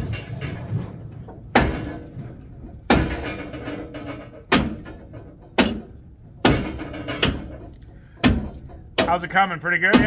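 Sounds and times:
heavy strikes on iron pipe: 2.8s - 9.3s.

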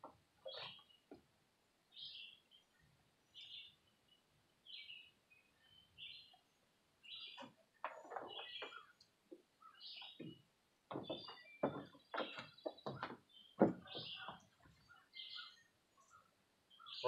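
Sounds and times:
bird chirping: 0.4s - 1.2s, 1.9s - 17.0s
clicks and knocks: 10.0s - 14.4s.

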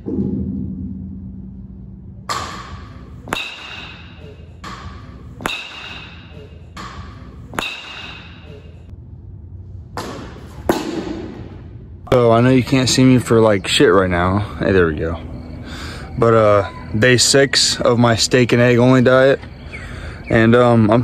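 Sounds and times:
baseball bat striking balls: 2.2s - 8.9s, 9.9s - 11.8s.

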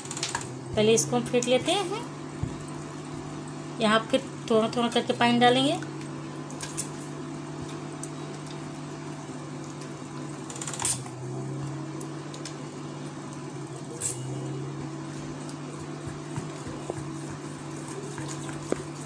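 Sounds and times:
low mechanical hum: 0.0s - 19.0s
spoon stirring batter: 15.8s - 19.0s.

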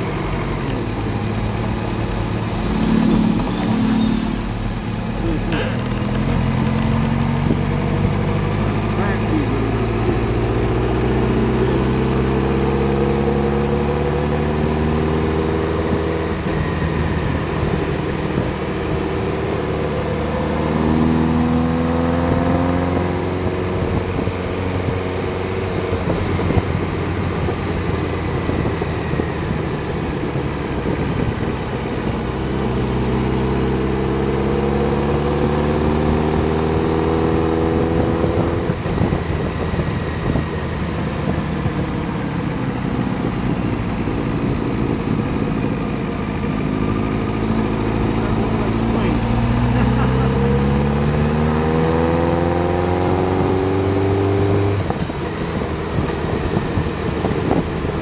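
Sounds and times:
wind noise: 0.0s - 8.7s, 15.3s - 19.6s, 22.2s - 49.8s, 50.4s - 58.0s
motorcycle engine accelerating: 0.0s - 58.0s.

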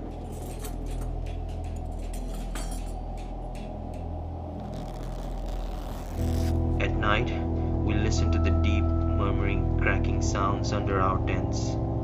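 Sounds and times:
camp gear clinking and jingling: 0.0s - 3.8s
steady low drone: 0.0s - 12.0s.

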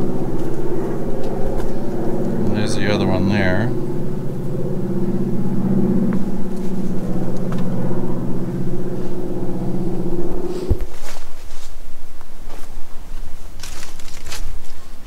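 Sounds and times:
motor engine droning: 0.0s - 11.6s.

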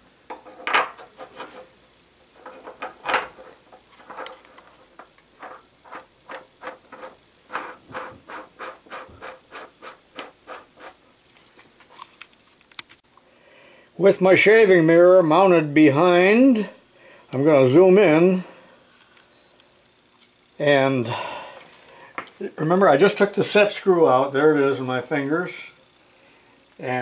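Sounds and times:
threads scraping and clicking: 0.3s - 13.0s.

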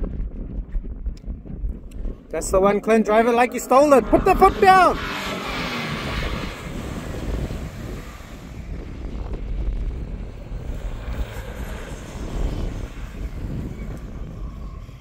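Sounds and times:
wind rumbling on microphone: 0.0s - 15.0s
engine at full throttle: 1.6s - 15.0s.

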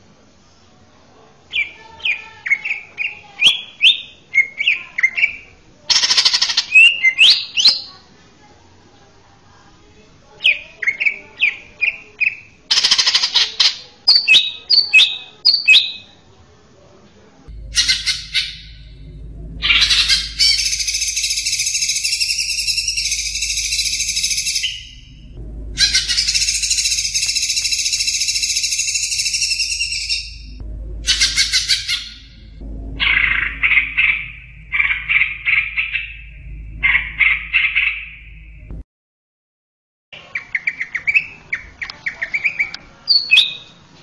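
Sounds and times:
bird singing whistled notes: 1.6s - 5.5s, 14.1s - 16.1s, 19.6s - 32.4s
low hum: 17.4s - 38.8s.

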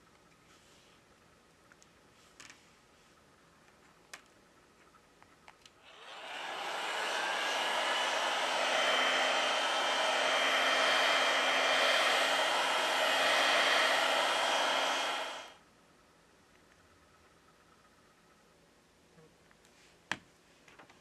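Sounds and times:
heat gun blowing: 5.9s - 15.6s.

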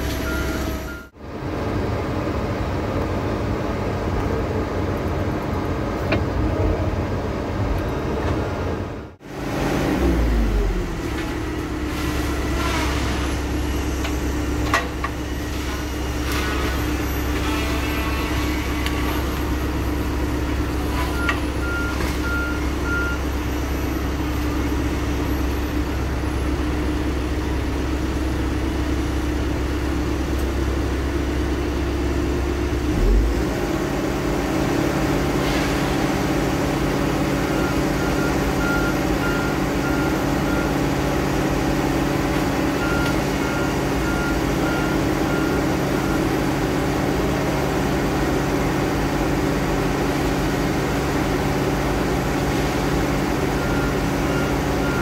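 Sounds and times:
diesel engine running: 0.0s - 55.0s
backup alarm beeping: 0.2s - 1.1s, 21.1s - 23.4s.

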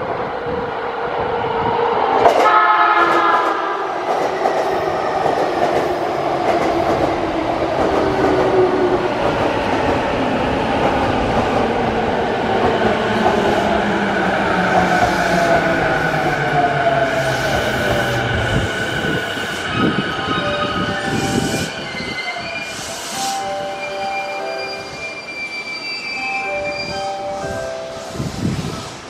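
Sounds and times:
train horn blast: 2.4s - 3.9s.

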